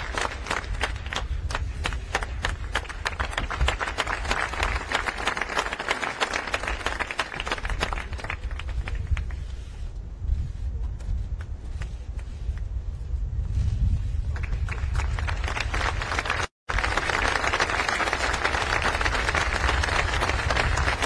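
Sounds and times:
audience applause: 0.0 - 9.0, 14.4 - 21.0
steady low rumble: 7.5 - 17.0.

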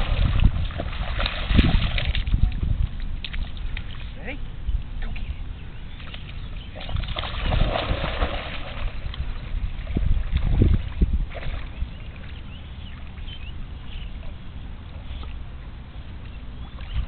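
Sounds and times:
dog splashing into water: 0.0 - 2.6, 6.0 - 12.4
water sloshing: 0.0 - 17.0.

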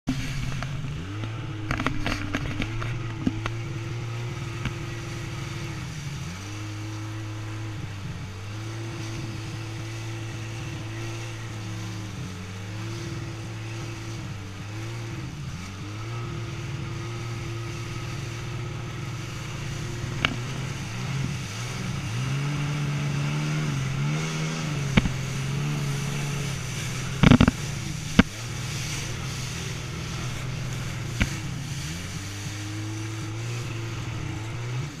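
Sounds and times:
rush of water spray: 0.1 - 35.0
watercraft engine running hard: 0.1 - 35.0
sharp thumps: 27.0 - 28.4.

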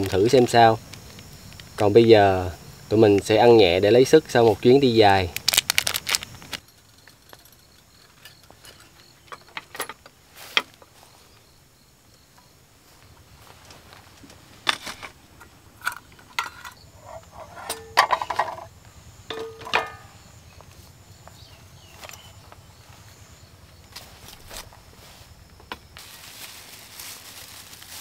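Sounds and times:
metal cookware clinking: 15.8 - 18.7, 19.3 - 20.2.

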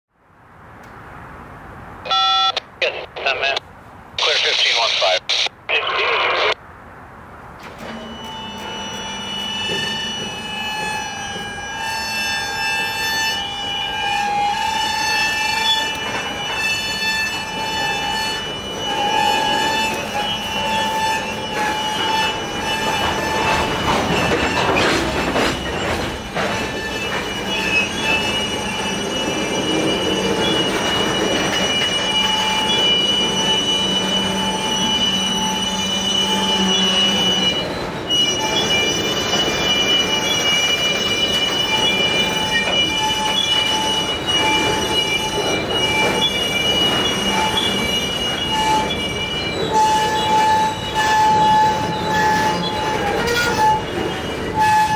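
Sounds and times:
train rumble: 0.3 - 54.9
train wheels squealing on rails: 7.6 - 54.9.

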